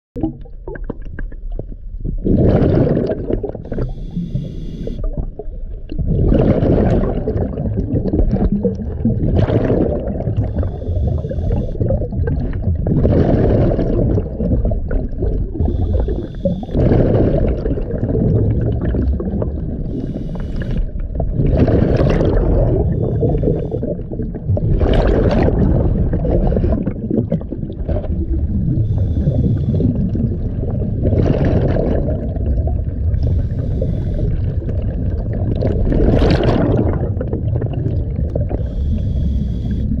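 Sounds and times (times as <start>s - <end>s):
exhaled bubbles underwater: 0.2s - 40.0s
low underwater rumble: 0.2s - 40.0s
regulator hiss: 3.7s - 5.0s, 10.6s - 11.8s, 15.6s - 16.8s, 19.9s - 20.8s, 28.9s - 29.9s, 33.2s - 34.4s, 38.6s - 40.0s.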